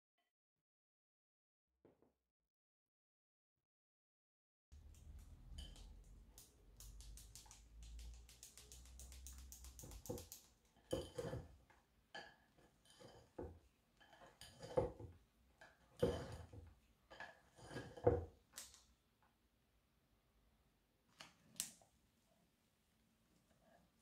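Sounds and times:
whisk scraping a glass bowl: 10.9 - 11.6, 12.7 - 15.0, 16.0 - 16.6, 17.2 - 18.2.

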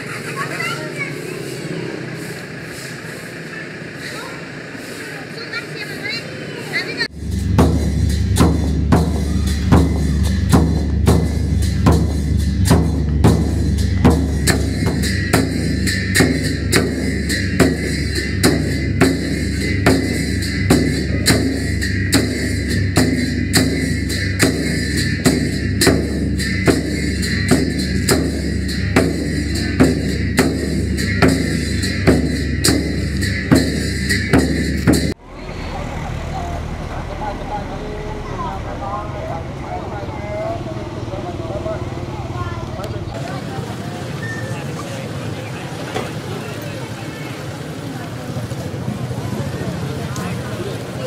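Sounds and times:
large drum beaten: 7.0 - 35.3
deep drum rumble: 7.0 - 43.2.

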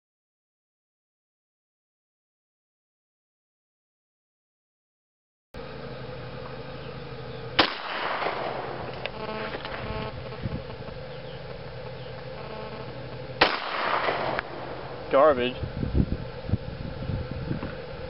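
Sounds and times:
pistol shot echoing: 7.6 - 8.9, 13.4 - 15.0.

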